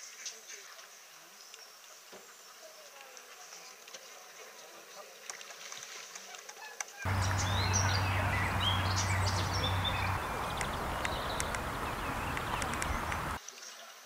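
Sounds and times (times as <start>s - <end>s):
small birds chirping: 7.1s - 13.4s
wind noise on microphone: 7.1s - 13.4s.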